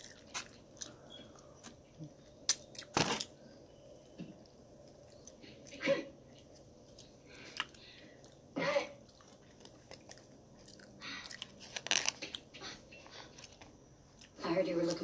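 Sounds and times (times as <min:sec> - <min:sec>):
chewing mouth noises: 0:04.8 - 0:12.4.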